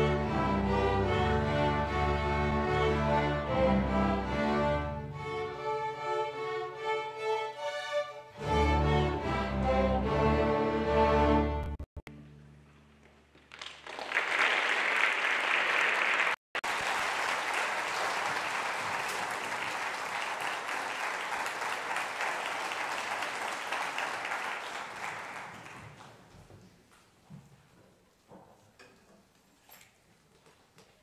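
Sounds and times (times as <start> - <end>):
string orchestra chord ringing: 0.0 - 12.6
audience applauding: 13.1 - 26.3.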